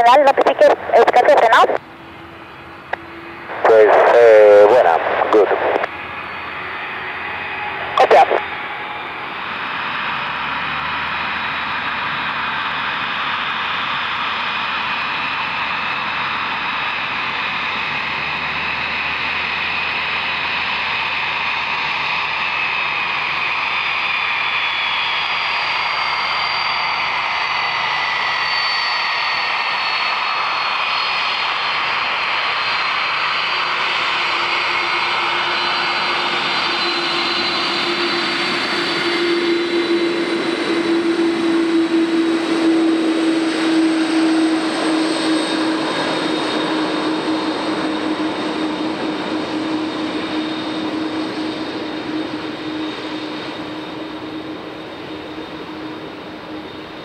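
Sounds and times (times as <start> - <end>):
jet engines whining: 0.0 - 57.0.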